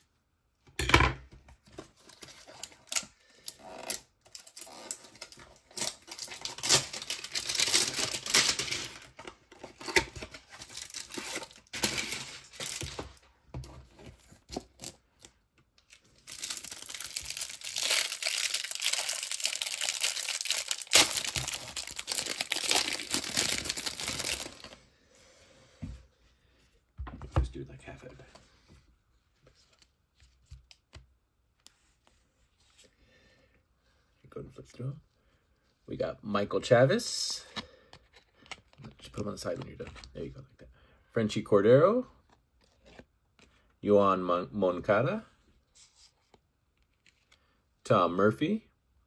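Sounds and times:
card packaging crinkling: 0:04.3 - 0:13.3, 0:14.0 - 0:24.8.

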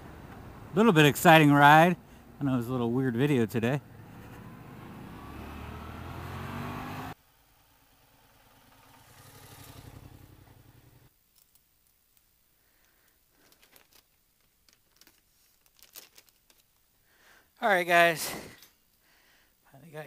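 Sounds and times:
motorcycle engine: 0:03.5 - 0:11.1
engine with low pulse: 0:03.8 - 0:11.1
faint clicks and rustles: 0:11.1 - 0:17.0.

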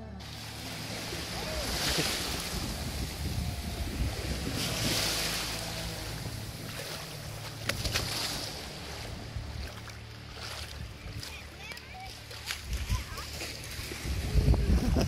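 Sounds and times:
wind rumbling on microphone: 0:00.0 - 0:11.5, 0:12.5 - 0:15.0
small waves washing on sand: 0:00.0 - 0:15.0.

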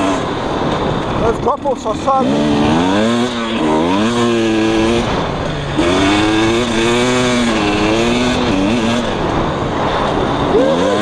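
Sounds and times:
dirt bike engine revving: 0:00.0 - 0:11.0.

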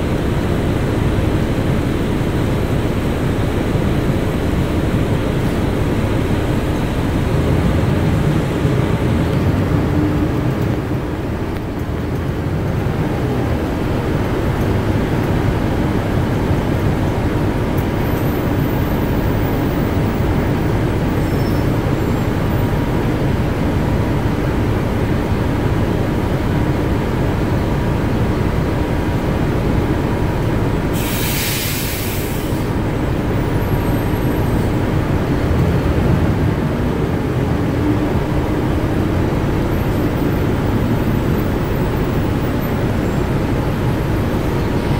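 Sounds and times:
bus engine and road rumble: 0:00.0 - 0:44.9
short loud hiss: 0:31.0 - 0:32.7.

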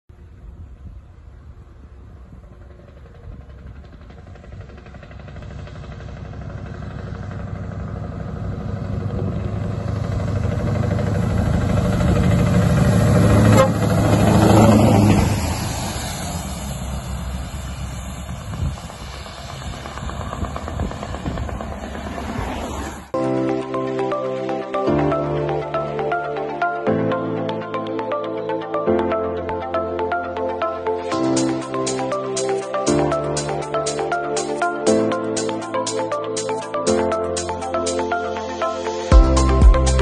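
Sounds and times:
lorry diesel engine hum: 0:00.1 - 0:40.0
tyres hissing on wet road: 0:12.9 - 0:20.3.

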